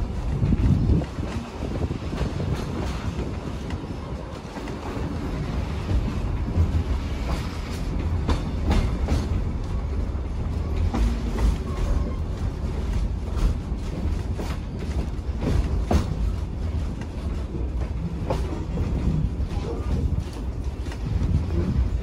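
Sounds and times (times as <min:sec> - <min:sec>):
train low rumble: 0:00.0 - 0:22.0.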